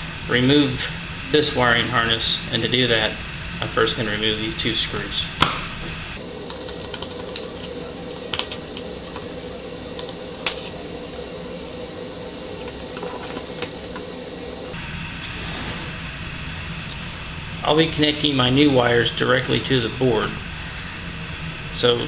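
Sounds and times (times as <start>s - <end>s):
steady hiss: 6.2s - 14.8s.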